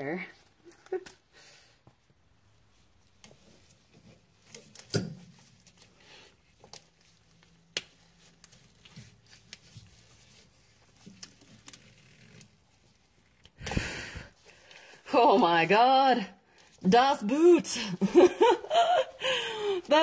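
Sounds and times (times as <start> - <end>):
rubber rubbing and handling noises: 0.2 - 14.8.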